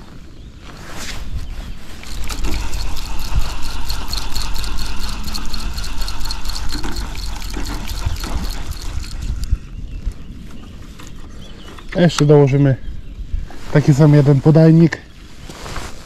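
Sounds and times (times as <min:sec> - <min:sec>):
fishing reel ticking: 0:02.0 - 0:09.5.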